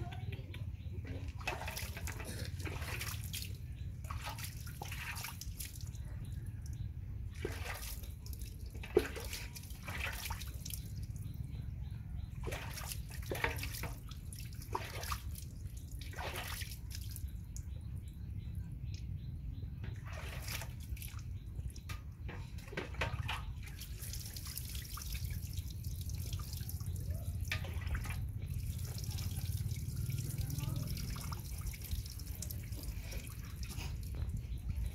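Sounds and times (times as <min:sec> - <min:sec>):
water splashing and pouring: 0:01.0 - 0:06.5, 0:07.2 - 0:11.5, 0:12.3 - 0:17.7, 0:19.8 - 0:34.9
water dripping onto wet concrete: 0:23.6 - 0:34.2.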